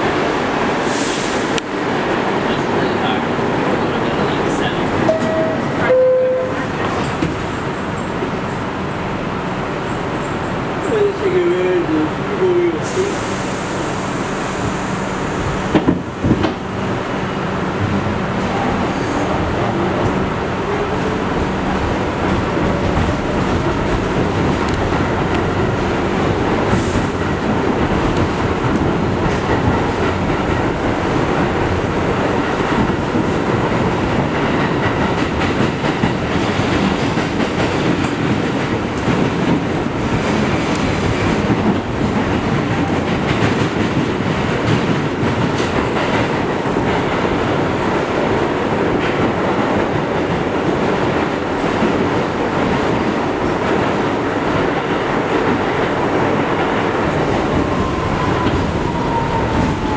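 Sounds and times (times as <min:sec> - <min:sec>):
wheels rumbling on rails: 0:13.0 - 0:59.9.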